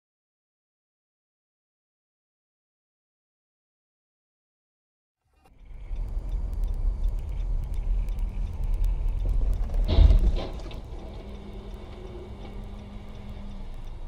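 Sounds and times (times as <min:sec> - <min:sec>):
car driving rumble: 0:05.4 - 0:14.0.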